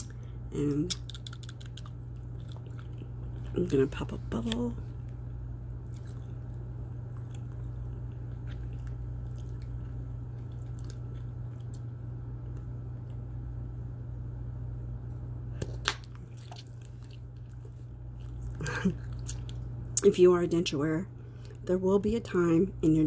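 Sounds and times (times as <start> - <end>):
steady low hum: 0.0 - 23.0
wet gum chewing clicks: 0.8 - 3.4.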